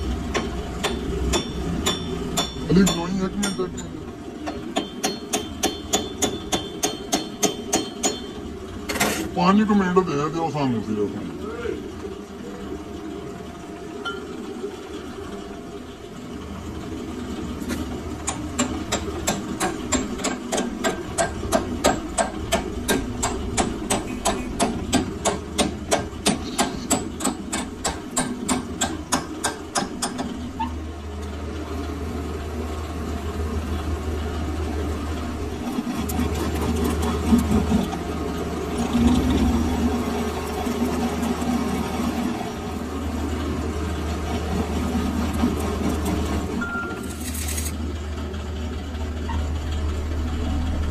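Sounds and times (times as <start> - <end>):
lathe motor humming: 0.0 - 46.6, 47.2 - 50.9
hammer tapping metal: 0.3 - 8.4.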